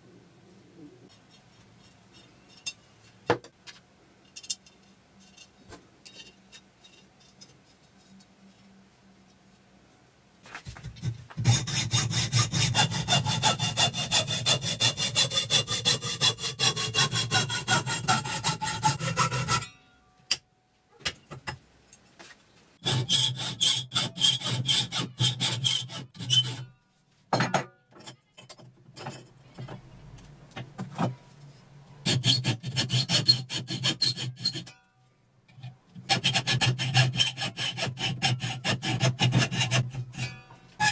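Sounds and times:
hacksaw cutting metal: 11.4 - 19.8, 22.8 - 26.6, 32.0 - 34.8, 35.6 - 40.9.

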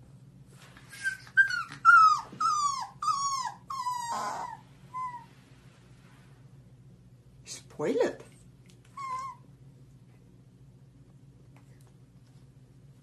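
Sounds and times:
puppy whining: 0.8 - 5.4, 8.9 - 9.6.

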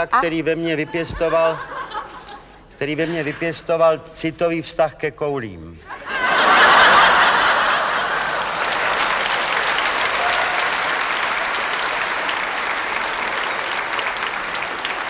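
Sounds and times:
audience applauding: 6.6 - 15.0.

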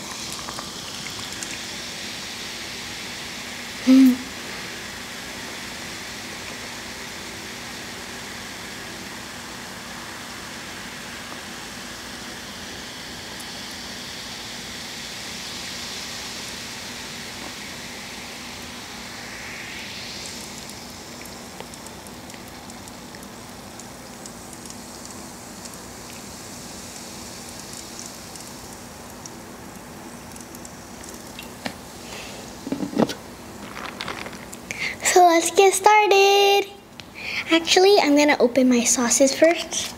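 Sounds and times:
soda pouring into glass: 0.0 - 3.4, 15.2 - 34.9
soda bubbles fizzing: 0.0 - 35.8.

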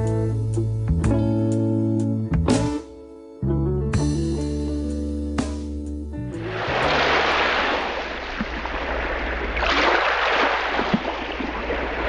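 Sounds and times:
rushing water surging: 6.4 - 12.0.

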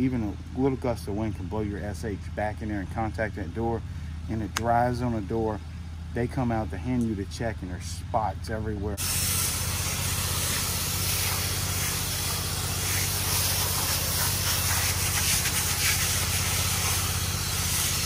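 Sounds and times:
pressure washer wand hissing: 9.0 - 18.0.

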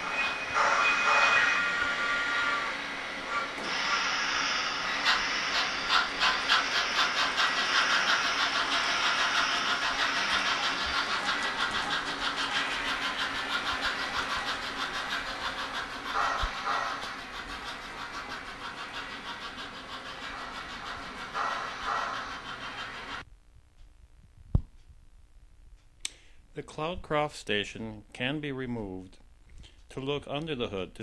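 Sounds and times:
steam whistle: 0.0 - 2.8
steam exhaust chuffs: 0.0 - 23.2.

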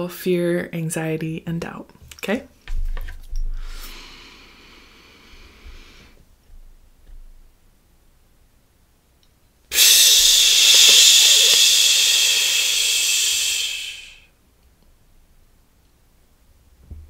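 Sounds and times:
woman exhaling forcefully: 3.6 - 6.2, 9.7 - 14.3.

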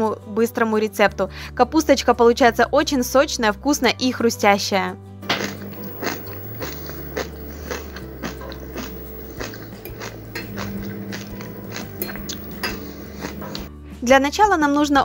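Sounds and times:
soft background music: 0.0 - 15.0
sauerkraut crunching while chewed: 5.2 - 13.7.

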